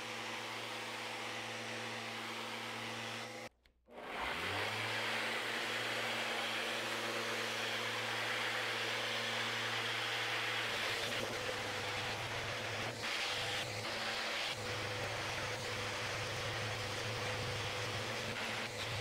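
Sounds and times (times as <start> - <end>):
orbital sander running: 4.4 - 19.0.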